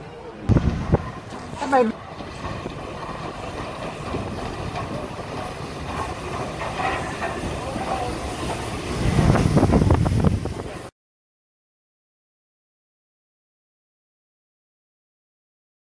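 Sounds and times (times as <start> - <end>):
steam locomotive wheels rumbling: 0.0 - 10.9.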